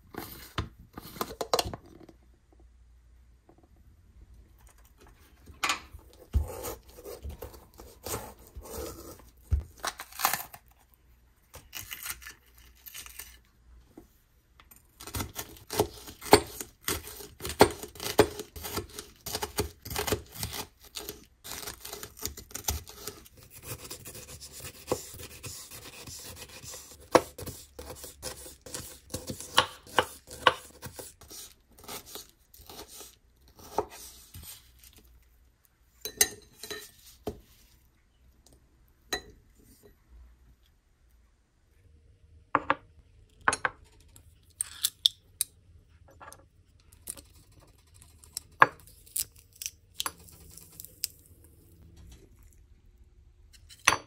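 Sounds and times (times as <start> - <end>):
knife slicing bell pepper: 6.2 - 10.6, 15.0 - 35.0.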